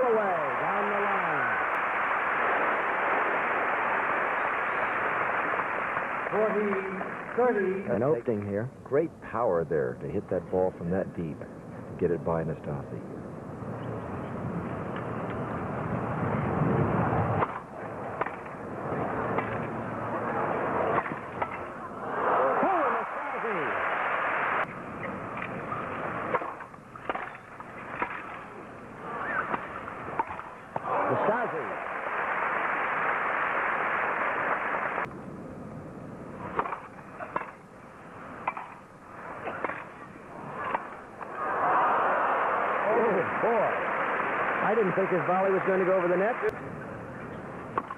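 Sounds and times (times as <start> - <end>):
crowd applause: 0.0 - 7.9, 21.7 - 24.7, 30.8 - 35.1, 41.2 - 46.5
racket striking tennis ball: 17.4 - 19.7, 20.7 - 21.7, 25.4 - 30.9, 36.4 - 37.6, 38.3 - 41.0, 47.7 - 47.9
crowd murmuring: 17.9 - 23.8.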